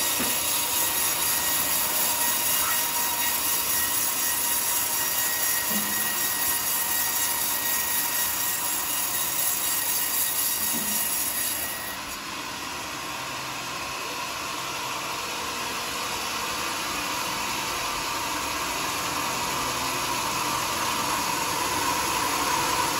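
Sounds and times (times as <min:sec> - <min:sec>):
band saw cutting log: 0:00.0 - 0:12.3.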